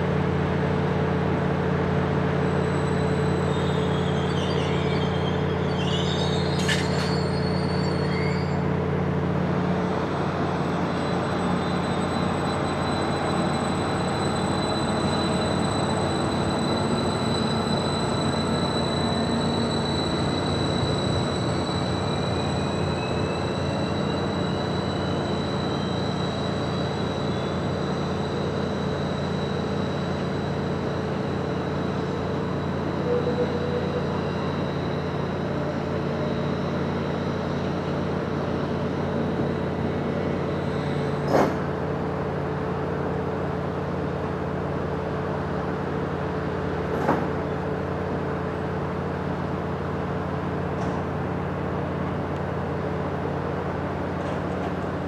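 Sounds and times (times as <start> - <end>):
train engine rumble: 0.0 - 55.0
high-pitched squeal: 2.5 - 8.7, 9.9 - 41.6
rising whine: 9.7 - 41.2.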